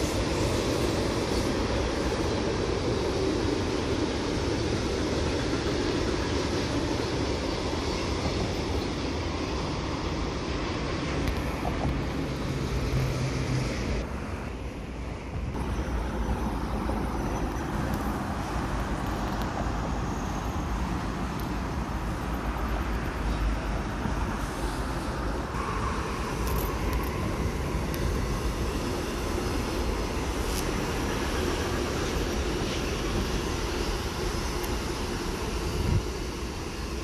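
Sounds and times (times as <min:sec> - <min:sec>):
motorway traffic noise: 0:00.0 - 0:37.0
wind rumble on microphone: 0:35.7 - 0:36.6.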